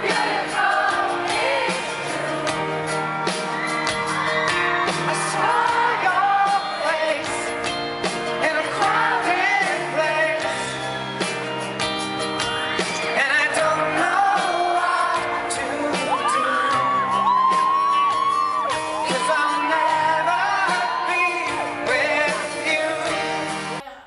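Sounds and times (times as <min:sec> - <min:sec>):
drums: 0:00.0 - 0:23.8
keyboard: 0:00.0 - 0:23.9
acoustic guitar: 0:00.0 - 0:24.0
man singing: 0:04.8 - 0:07.6, 0:08.2 - 0:10.8, 0:13.0 - 0:17.2, 0:19.0 - 0:24.0.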